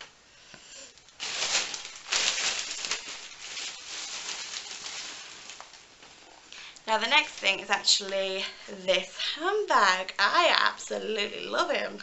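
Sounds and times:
rustling fabric and shopping bags: 0.9 - 9.0.

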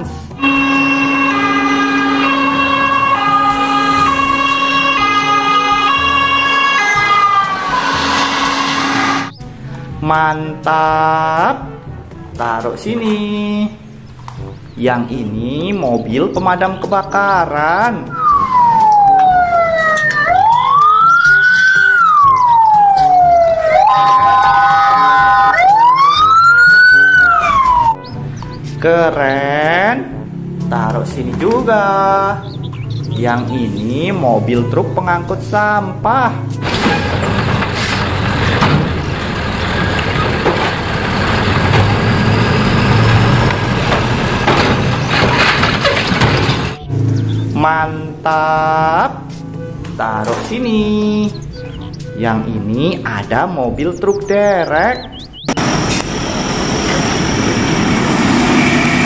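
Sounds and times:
steady horn tone: 0.0 - 9.6
two-tone ambulance siren: 0.4 - 9.4, 18.1 - 28.2.

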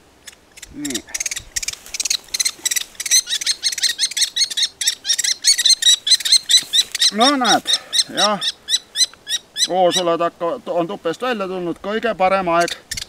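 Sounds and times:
shrill bird nestling calls: 0.2 - 10.2.

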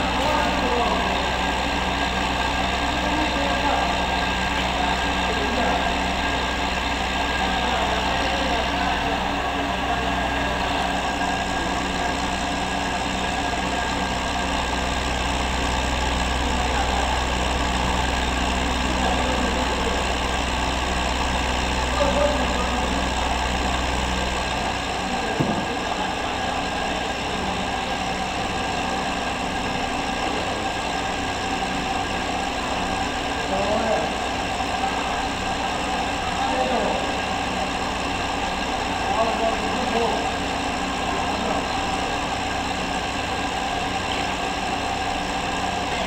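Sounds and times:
machinery running: 0.0 - 46.0
short knock: 25.4 - 25.7.

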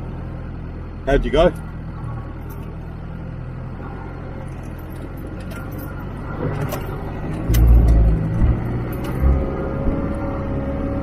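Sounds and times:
vehicle engine idling: 0.0 - 11.0
body and load rattling: 4.4 - 9.3.

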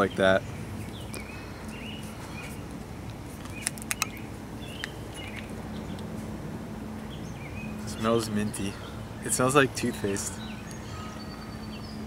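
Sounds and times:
small birds chirping: 0.0 - 6.3, 6.9 - 12.0
plastic bottle cap twisting open: 3.4 - 4.2.

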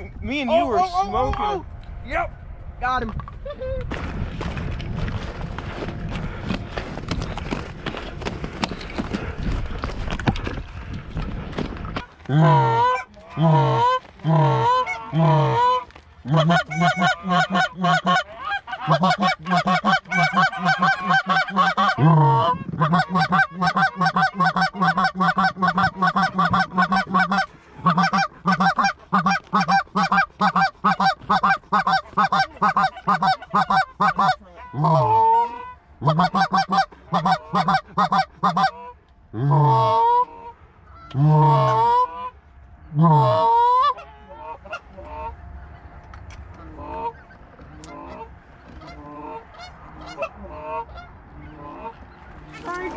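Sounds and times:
goose call honks: 12.3 - 45.4.

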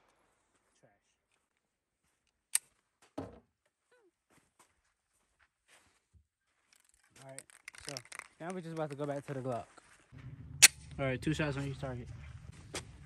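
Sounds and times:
footsteps on dirt: 0.0 - 7.4, 8.2 - 10.5, 11.5 - 13.0.

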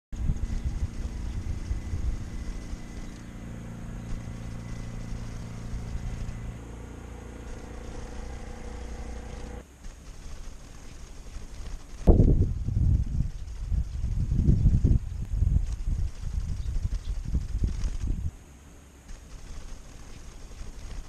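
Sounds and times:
vehicle engine humming: 0.2 - 21.0.

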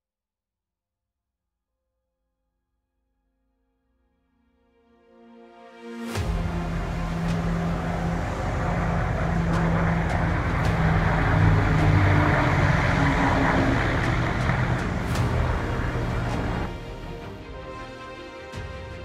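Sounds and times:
rushing water and wind: 6.1 - 19.0
low ship engine drone: 6.2 - 17.7.

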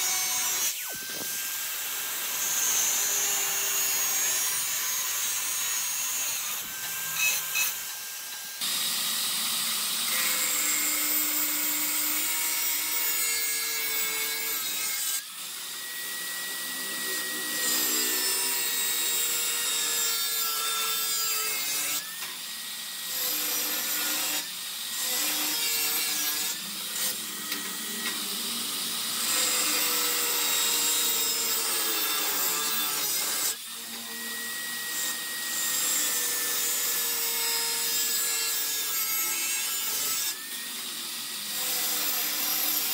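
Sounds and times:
angle grinder cutting steel: 0.0 - 42.9.

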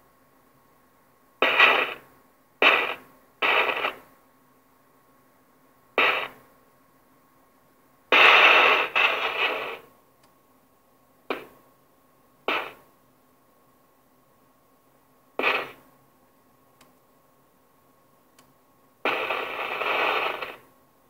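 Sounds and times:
faint steady radio hum: 0.0 - 21.0
radio static crashes: 1.4 - 4.1, 6.0 - 6.4, 8.1 - 9.9, 11.3 - 11.6, 12.5 - 12.9, 15.4 - 15.8, 19.0 - 20.7.

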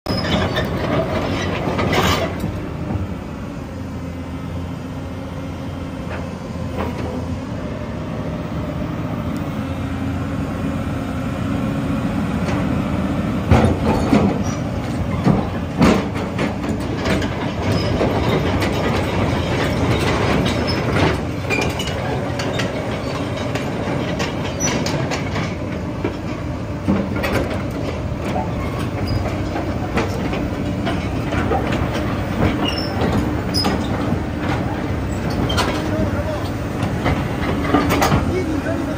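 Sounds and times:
metallic clanks and squealing: 0.1 - 2.6, 13.5 - 38.9
excavator diesel engine running: 0.1 - 38.9.

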